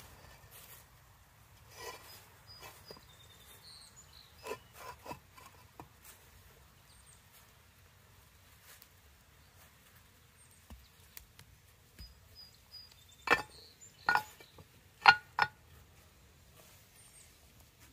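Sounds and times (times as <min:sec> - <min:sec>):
concrete blocks knocking together: 0:13.2 - 0:15.6.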